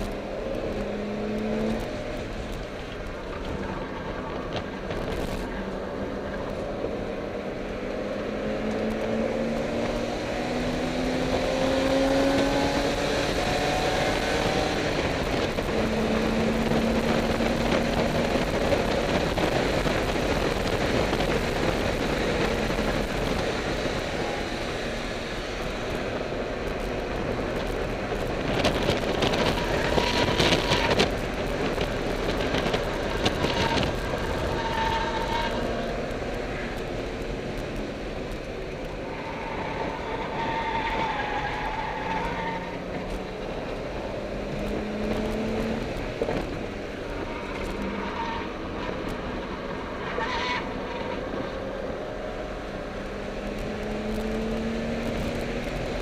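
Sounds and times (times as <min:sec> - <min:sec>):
car engine accelerating: 0:00.0 - 0:56.0
wind and road noise: 0:00.0 - 0:56.0.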